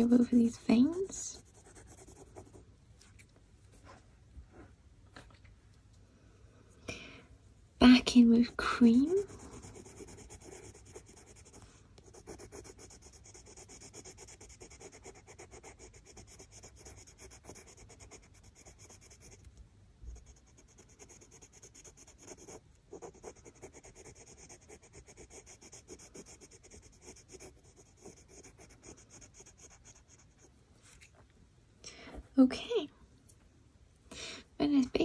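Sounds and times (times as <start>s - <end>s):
coloured pencil shading on paper: 0.0s - 2.6s, 7.8s - 19.5s, 20.2s - 30.5s.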